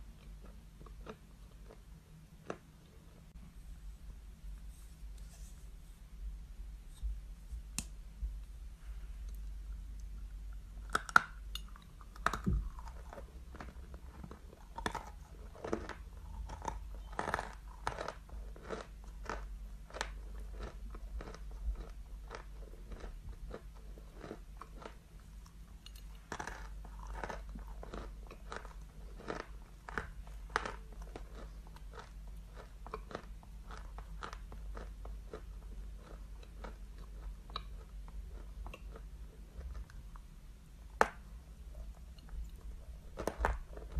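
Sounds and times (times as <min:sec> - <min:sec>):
chalk crunching when chewed: 0:10.9 - 0:25.6, 0:26.3 - 0:40.0.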